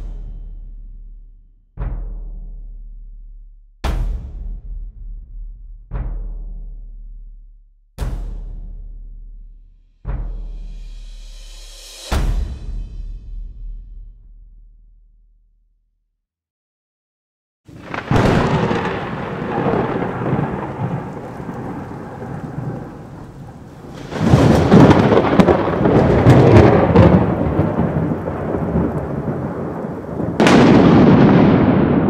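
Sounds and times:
thunderclaps with rolling rumble: 17.7s - 32.0s.

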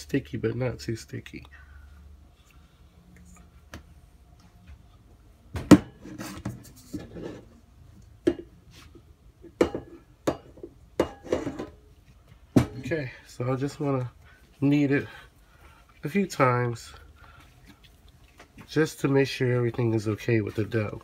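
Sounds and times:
metal bowl knocks and clinks: 9.4s - 11.8s
soft handling noise: 11.3s - 21.0s.

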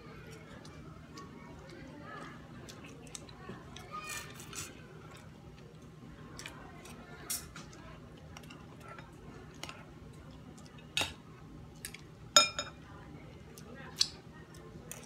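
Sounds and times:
chewing and mouth clicks: 0.2s - 10.8s.

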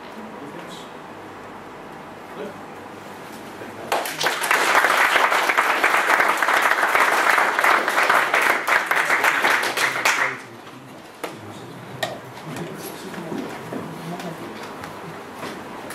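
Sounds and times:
audience applauding: 3.9s - 10.5s.

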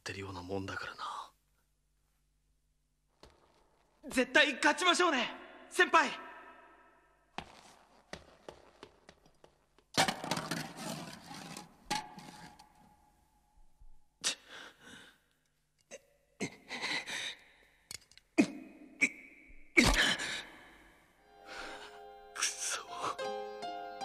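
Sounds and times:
breaths: 14.2s - 15.5s, 16.6s - 17.9s, 19.9s - 22.1s.

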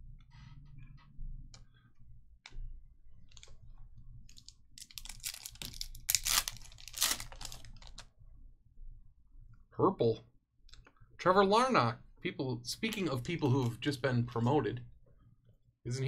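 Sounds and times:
foil pack tearing and crinkling: 4.9s - 8.0s.

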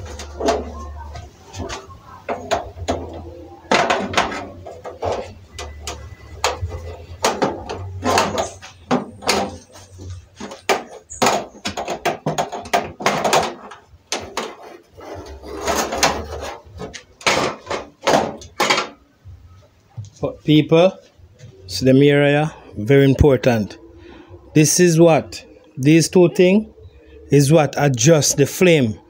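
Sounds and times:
metal clanks and rattles: 0.0s - 19.1s.

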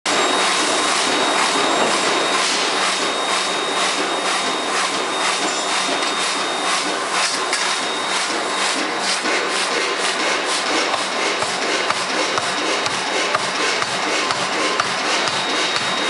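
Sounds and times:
thin high whine: 0.1s - 9.0s, 14.7s - 16.0s.

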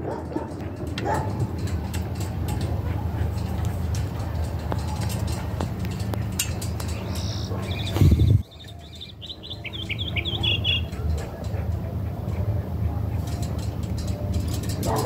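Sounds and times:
bird chirping: 6.8s - 11.3s.

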